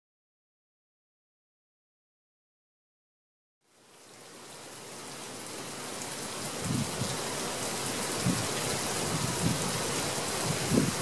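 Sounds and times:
rain on a fabric tarp: 0:03.6 - 0:11.0.

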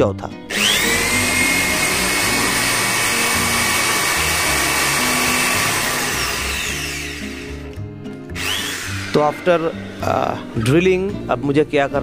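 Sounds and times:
electric drill whining: 0:00.5 - 0:09.6.

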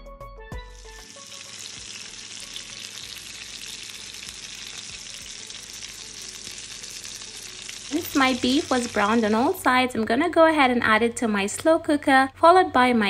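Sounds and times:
meat sizzling in a pan: 0:00.6 - 0:09.6.

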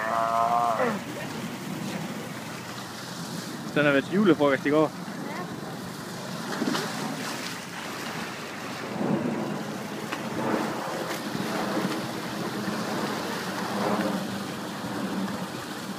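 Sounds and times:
waterfall splashing into pool: 0:00.0 - 0:05.0, 0:05.9 - 0:15.9
wind on microphone: 0:05.1 - 0:15.9.

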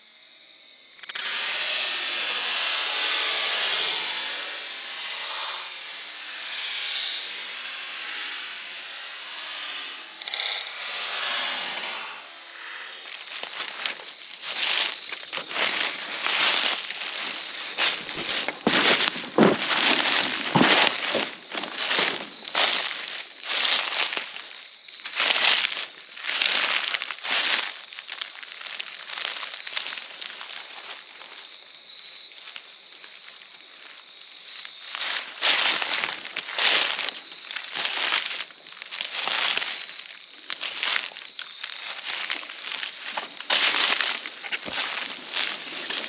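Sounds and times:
boots crunching through dry leaves: 0:10.2 - 0:10.6, 0:13.0 - 0:46.0.

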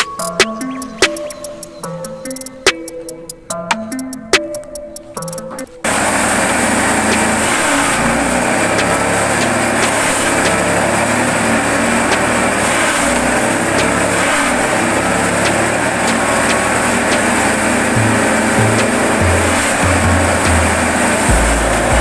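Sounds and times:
grass chopper machine running: 0:05.8 - 0:22.0.

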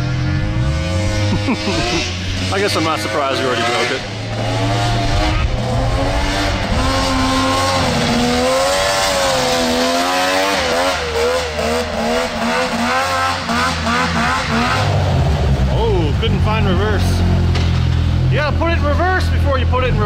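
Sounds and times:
two-stroke engine revving: 0:00.0 - 0:20.0.

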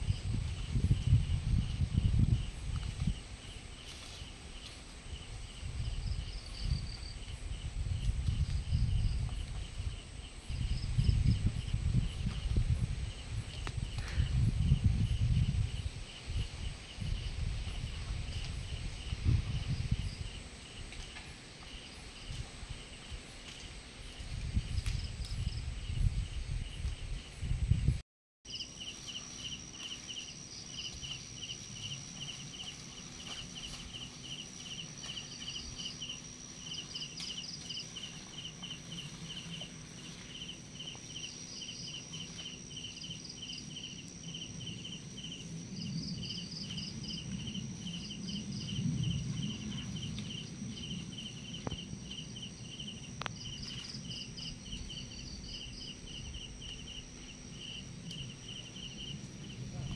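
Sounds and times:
crickets chirping: 0:00.0 - 0:59.9
high insect whine: 0:00.0 - 0:59.9
low rumbling noise: 0:43.6 - 0:59.9.

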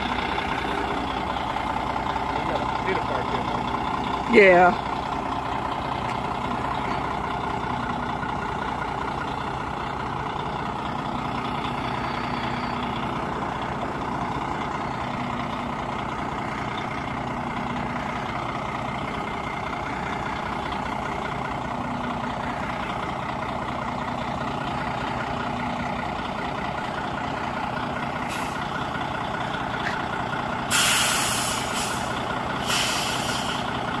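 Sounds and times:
truck diesel engine running: 0:00.0 - 0:34.0
air brakes hissing: 0:28.2 - 0:28.7, 0:30.7 - 0:33.8.

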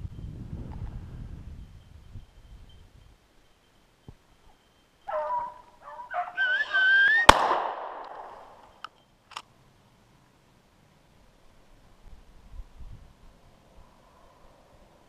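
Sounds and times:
hounds baying: 0:05.0 - 0:07.3
shotgun shot: 0:07.2 - 0:08.5.

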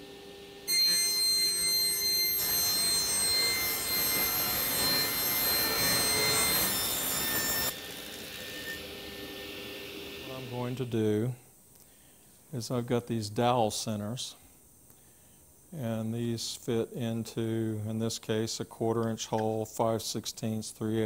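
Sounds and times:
saw table rolling along rails: 0:00.8 - 0:08.8.

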